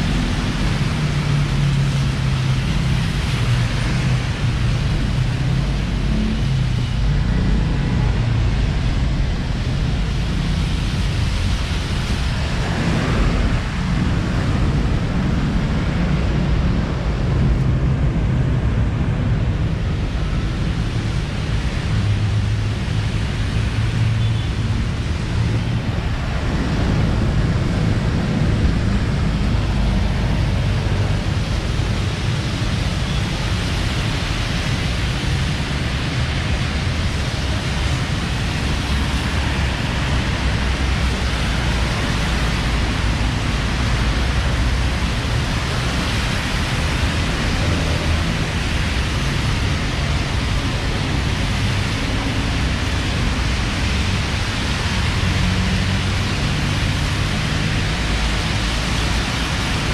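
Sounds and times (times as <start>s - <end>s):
low rumble of engines: 0.0s - 59.9s
tyres hissing on wet road: 0.0s - 59.9s.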